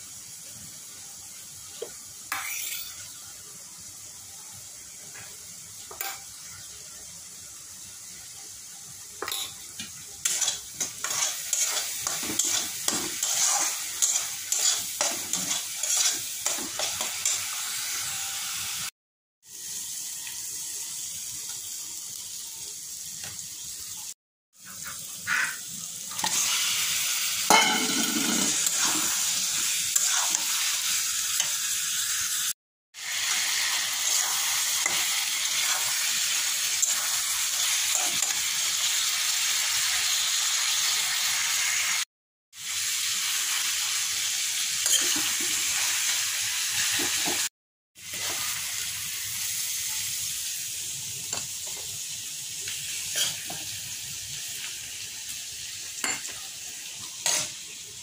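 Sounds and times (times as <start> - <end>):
chicken and potatoes sizzling in pan: 0.0 - 58.0
steel spatula stirring in pan: 10.2 - 17.5, 27.5 - 30.8, 53.1 - 53.7, 57.2 - 57.5.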